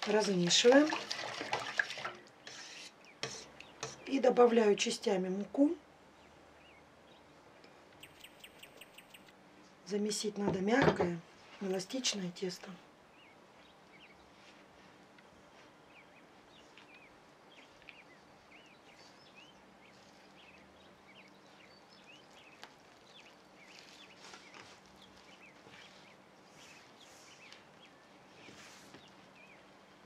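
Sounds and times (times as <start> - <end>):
small birds chirping: 2.9 - 4.4, 6.1 - 9.4, 11.7 - 14.6, 15.5 - 30.0
hands rustling dough in bowl: 22.5 - 29.2.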